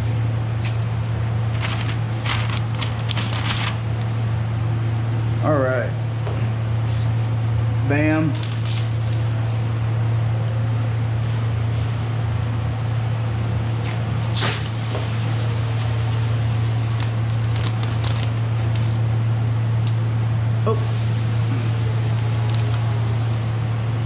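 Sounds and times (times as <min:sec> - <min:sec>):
ventilation fan humming: 0:00.0 - 0:24.0
plastic sheeting crinkling: 0:01.5 - 0:04.1, 0:16.9 - 0:19.0, 0:22.1 - 0:23.0
masking tape ripping: 0:13.8 - 0:14.7.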